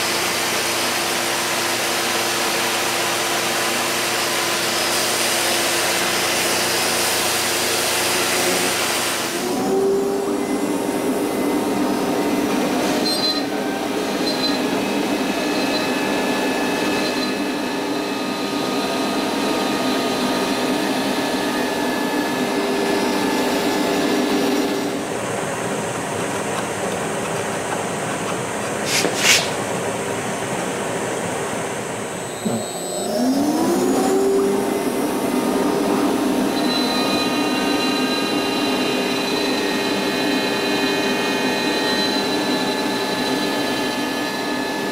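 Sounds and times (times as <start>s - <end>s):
dust extractor rushing: 32.4s - 41.7s.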